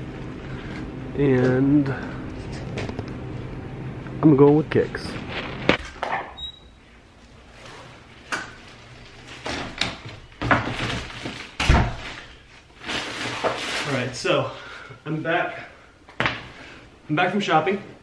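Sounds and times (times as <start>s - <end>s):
shopping bag rustling: 7.4s - 14.2s.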